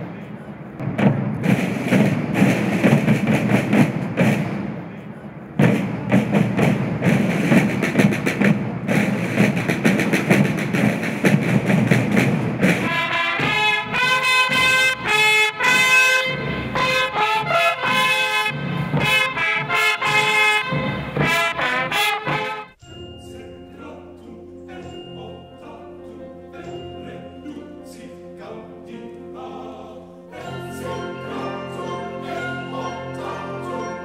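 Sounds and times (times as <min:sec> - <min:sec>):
parade drums beating: 0:00.5 - 0:22.8
trumpets holding notes: 0:12.6 - 0:24.8, 0:26.1 - 0:34.0.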